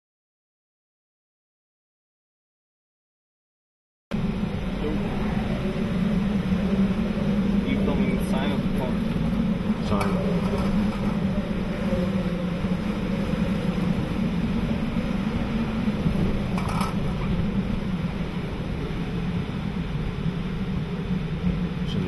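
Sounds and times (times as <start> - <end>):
constant low hum: 4.1 - 22.0
roar of hurricane-force wind: 4.1 - 22.0.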